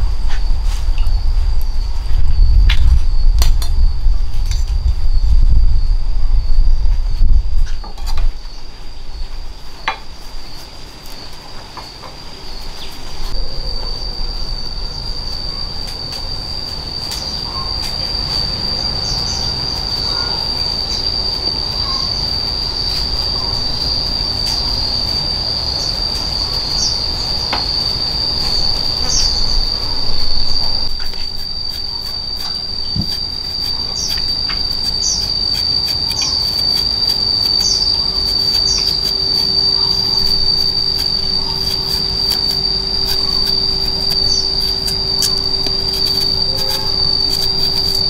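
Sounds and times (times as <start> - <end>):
low rumbling: 0.0 - 9.6
high-pitched insect chorus: 0.0 - 48.0.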